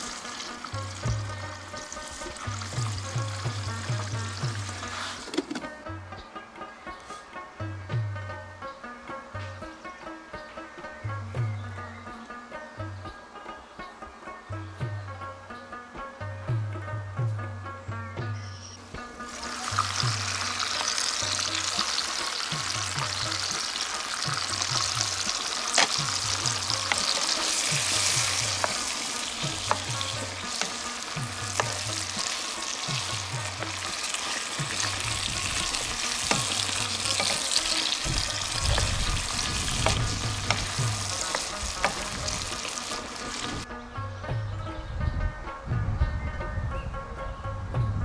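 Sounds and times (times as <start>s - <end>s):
chicken sizzling in a pan: 0.0s - 5.6s, 19.1s - 43.6s
faint background music beat: 0.0s - 48.0s
wooden spoon scraping a pan: 3.2s - 5.7s, 23.0s - 43.6s.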